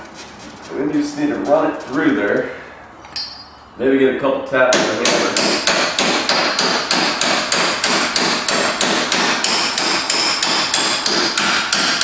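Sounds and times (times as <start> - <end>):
hammer ringing on steel bolt: 3.1 - 3.6.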